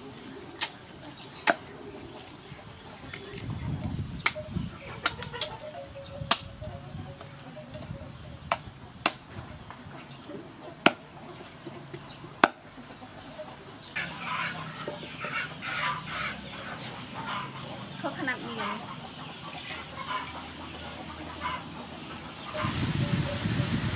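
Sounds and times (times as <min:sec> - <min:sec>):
chickens clucking: 0:00.0 - 0:23.9.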